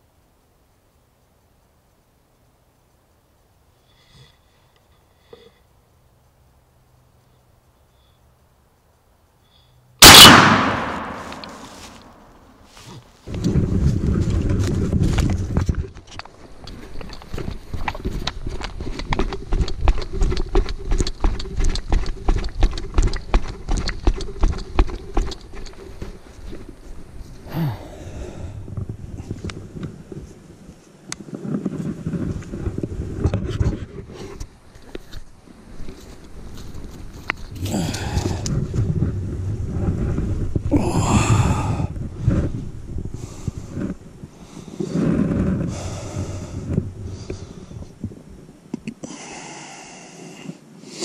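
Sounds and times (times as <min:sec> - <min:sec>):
footsteps running on grass and leaves: 0:11.2 - 0:12.0
wind rumble on microphone: 0:13.2 - 0:48.9
heavy breathing: 0:27.4 - 0:29.2, 0:37.6 - 0:38.6, 0:40.7 - 0:42.0, 0:43.2 - 0:47.9, 0:49.0 - 0:51.0.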